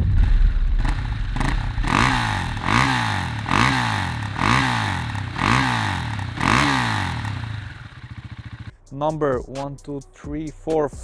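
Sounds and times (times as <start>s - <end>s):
motorcycle engine revving: 0.8s - 8.7s.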